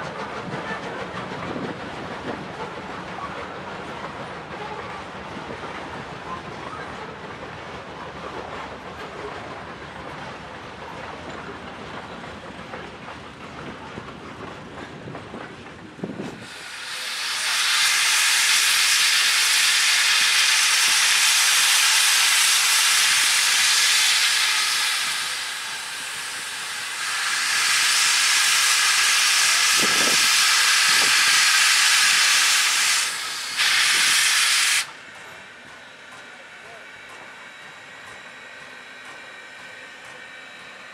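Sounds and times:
railroad cars rumbling past: 0:00.0 - 0:40.9
steam locomotive hissing steam: 0:16.0 - 0:38.9.

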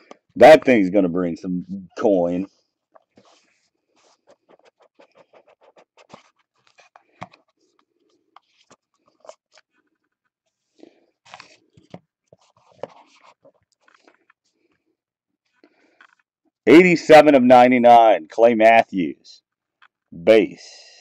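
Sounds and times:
card box scraping and rustling: 0:03.0 - 0:07.5.

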